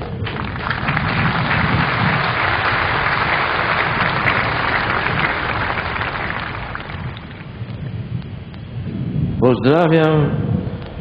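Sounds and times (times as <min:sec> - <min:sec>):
large crowd applauding: 0:00.0 - 0:07.6.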